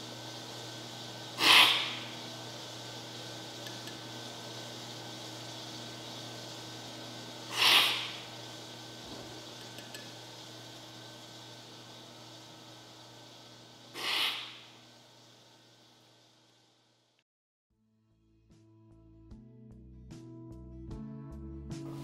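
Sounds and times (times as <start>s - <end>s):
loud coffee slurps: 1.4s - 2.1s, 7.5s - 8.2s, 14.0s - 14.5s.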